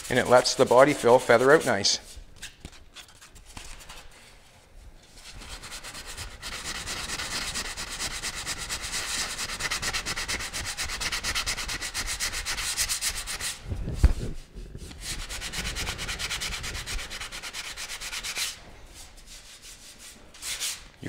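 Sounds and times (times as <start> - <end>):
sandpaper rubbing back and forth: 0.0 - 2.2, 5.2 - 13.6, 14.7 - 20.9.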